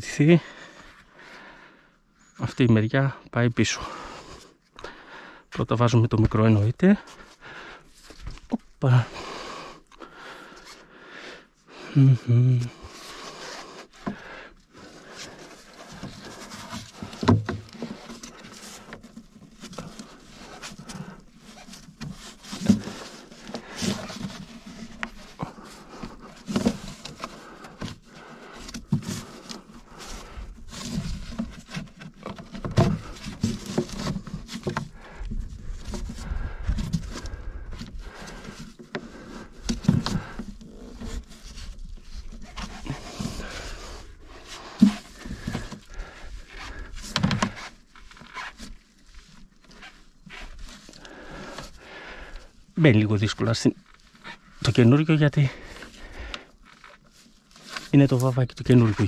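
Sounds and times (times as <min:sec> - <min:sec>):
knocks taps and scraping: 0:13.2 - 0:51.7.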